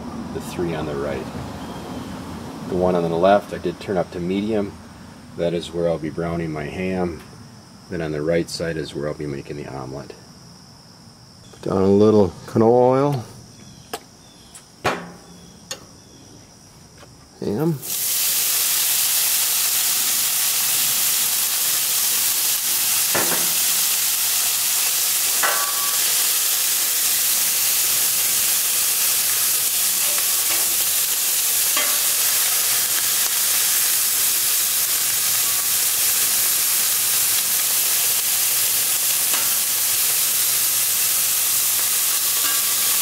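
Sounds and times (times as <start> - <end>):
ham sizzling on a griddle: 17.8 - 43.0
metal spatula scraping griddle: 25.4 - 26.2, 30.0 - 30.9, 31.6 - 32.8, 42.4 - 42.9.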